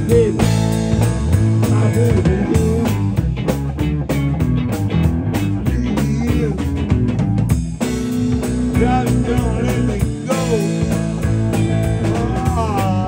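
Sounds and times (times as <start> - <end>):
man singing into a microphone: 0.0 - 0.6, 1.6 - 3.2, 5.6 - 6.7, 8.7 - 13.0
drum kit: 0.0 - 13.0
electric guitar: 0.0 - 13.0.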